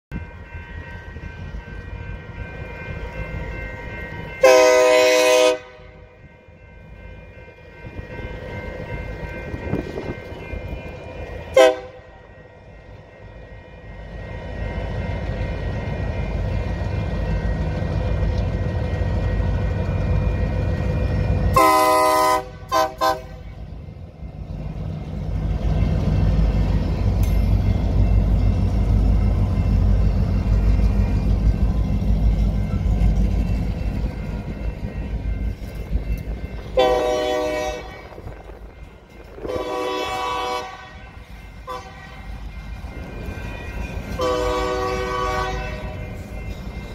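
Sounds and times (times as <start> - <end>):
diesel locomotive rumble: 0.1 - 46.9
locomotive air horn blasts: 4.4 - 6.1, 11.5 - 12.2, 21.5 - 23.5, 36.8 - 38.3, 39.4 - 42.3, 44.2 - 46.0.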